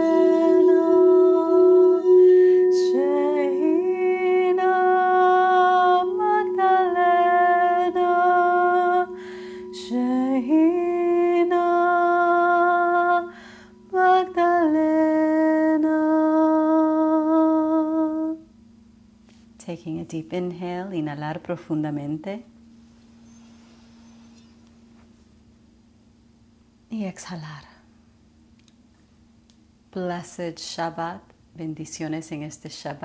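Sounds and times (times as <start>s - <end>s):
woman singing long notes: 0.0s - 18.5s
singing bowl ringing: 0.0s - 27.2s, 27.8s - 31.2s
breaths: 9.2s - 9.7s, 13.3s - 13.8s.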